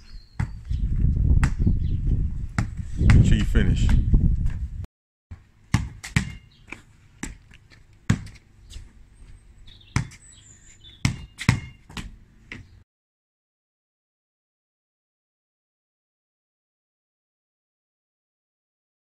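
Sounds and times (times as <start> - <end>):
footsteps on concrete: 0.0 - 12.8
basketball bouncing on concrete: 0.3 - 1.8, 2.5 - 4.6, 5.3 - 9.3, 9.9 - 10.3, 11.0 - 12.7.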